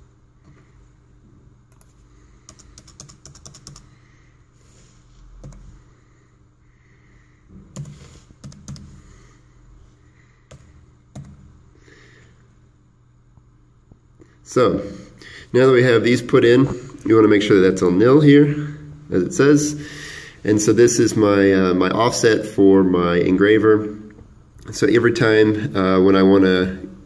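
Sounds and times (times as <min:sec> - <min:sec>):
low steady hum: 0:00.0 - 0:27.0
computer keyboard typing: 0:01.7 - 0:03.9, 0:05.4 - 0:05.8, 0:07.7 - 0:09.0, 0:10.5 - 0:11.5.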